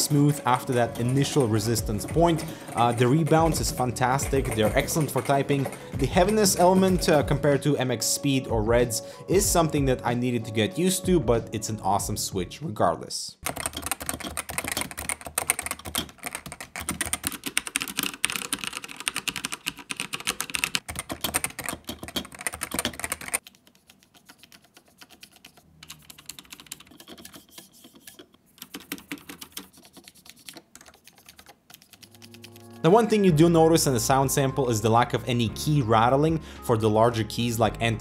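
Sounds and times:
keyboard typing: 0.0 - 7.6, 13.4 - 33.2.

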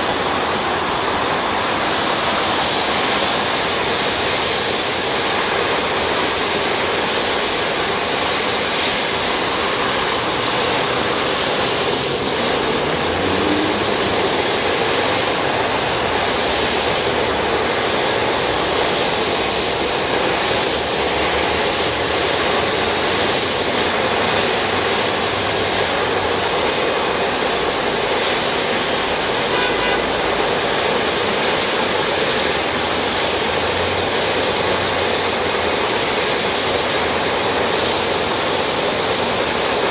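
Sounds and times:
jet engines idling: 0.0 - 39.9.

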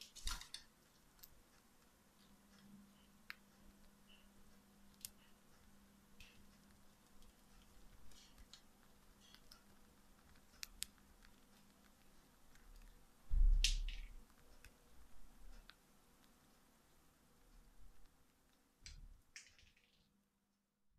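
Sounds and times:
thump: 13.3 - 13.6
bird beak cracking seeds: 13.6 - 14.3, 18.8 - 20.1.

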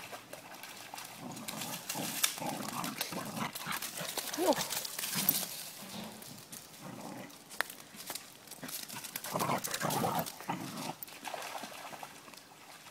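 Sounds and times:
dogs growling: 1.2 - 7.5, 8.6 - 11.0.

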